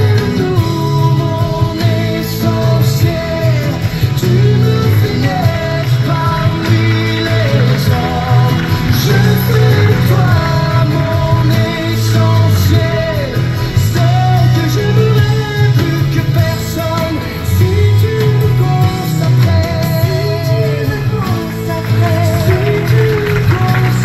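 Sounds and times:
heavy bass line: 0.0s - 24.0s
song with sung melody: 0.0s - 24.0s.

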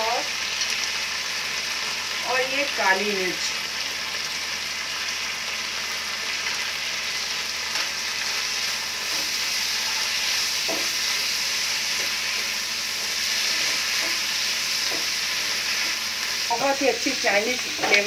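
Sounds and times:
vegetables sizzling in hot oil: 0.0s - 18.0s
stirring scrapes in a wok: 8.6s - 16.5s.

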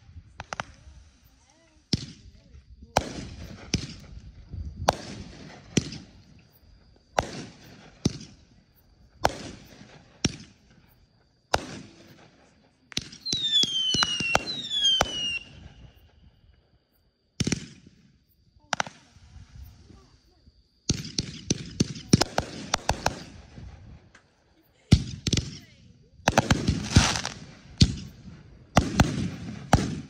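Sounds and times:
firework crackling: 0.0s - 6.3s, 13.0s - 16.1s, 18.6s - 23.8s, 26.3s - 30.0s
firework bangs: 0.3s - 6.3s, 7.2s - 8.4s, 9.2s - 10.8s, 13.0s - 16.2s, 17.4s - 18.0s, 20.9s - 23.9s, 26.3s - 30.0s
falling firework whistles: 13.0s - 16.6s, 26.3s - 28.2s.

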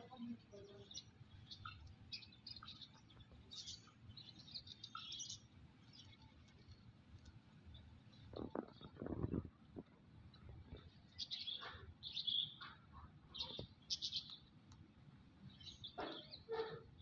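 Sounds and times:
high bird chirps: 0.1s - 6.4s, 11.1s - 14.4s.

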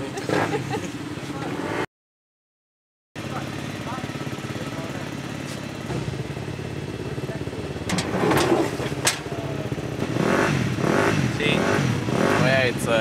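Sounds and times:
engine idling: 3.2s - 13.0s.

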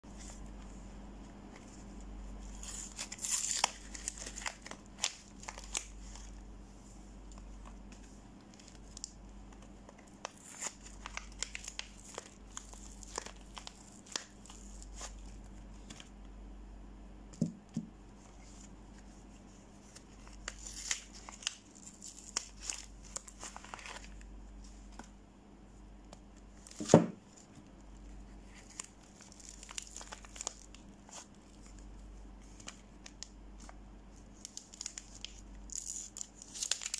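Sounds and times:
plastic wrappers crinkling and tearing: 2.4s - 6.4s, 7.2s - 16.1s, 19.8s - 25.1s, 28.0s - 36.9s.

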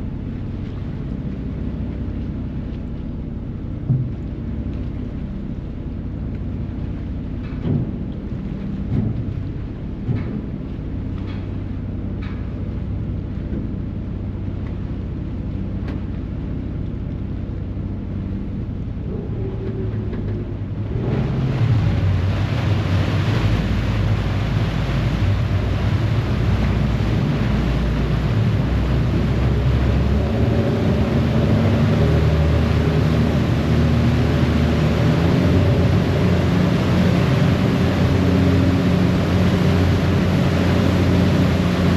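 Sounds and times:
ferry engines running: 0.0s - 41.9s
propeller wash churning: 19.0s - 41.9s.

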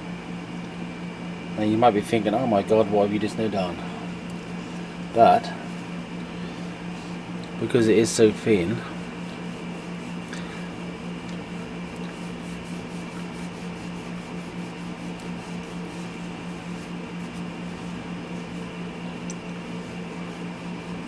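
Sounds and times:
low hum of room equipment: 0.0s - 21.0s
cloth rubbing on plastic: 9.1s - 21.0s.

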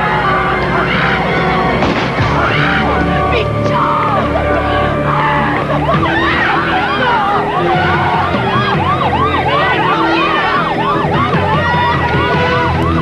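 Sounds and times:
siren yelping: 2.4s - 13.0s
higher-pitched second siren: 5.9s - 13.0s.

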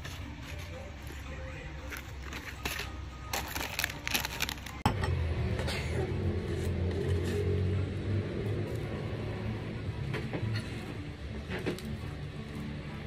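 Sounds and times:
plastic packaging crinkling: 1.9s - 4.8s.

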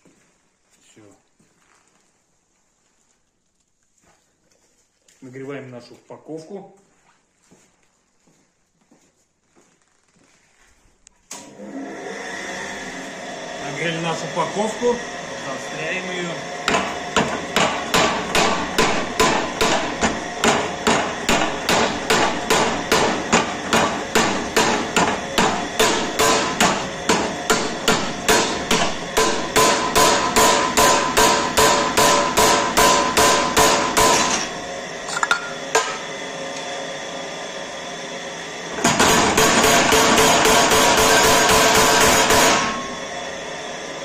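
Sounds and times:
steady machine hum: 11.4s - 44.0s
power hammer striking hot steel: 16.6s - 36.2s, 38.8s - 43.1s.

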